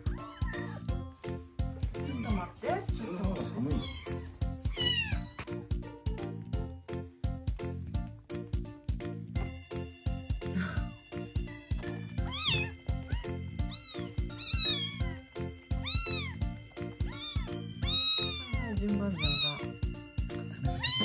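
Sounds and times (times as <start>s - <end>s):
background music with steady beat: 0.0s - 21.0s
kitten mewing: 3.7s - 5.6s, 12.3s - 15.1s, 15.8s - 16.4s, 17.1s - 19.7s, 20.8s - 21.0s.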